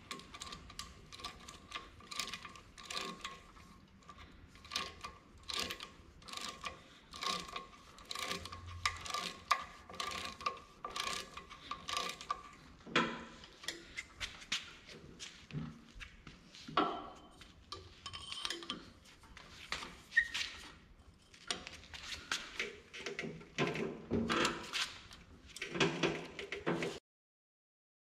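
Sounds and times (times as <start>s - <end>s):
ratchet wrench clicking: 4.6s - 12.3s.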